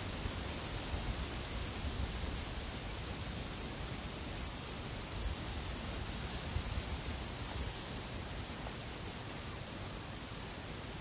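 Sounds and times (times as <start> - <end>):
fire crackles: 0.0 - 11.0
fire flames hissing: 0.0 - 11.0.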